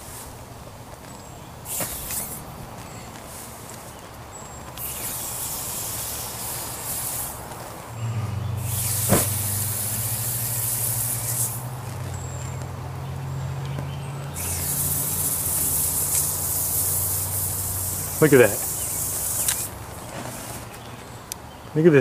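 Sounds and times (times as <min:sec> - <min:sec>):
hot metal hissing and sizzling: 0:01.6 - 0:02.5, 0:04.7 - 0:07.9, 0:08.6 - 0:11.8, 0:14.3 - 0:19.8
sharp pop: 0:01.7 - 0:02.4, 0:08.7 - 0:09.6.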